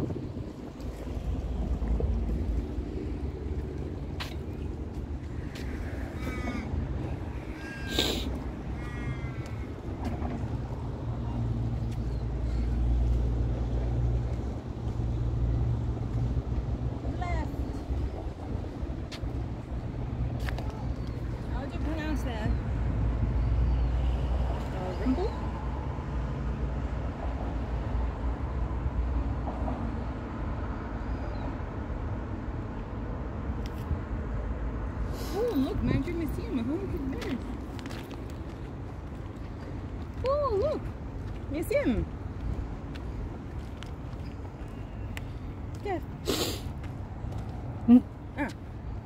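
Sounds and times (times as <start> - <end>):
wind buffeting the microphone: 0.0 - 23.4.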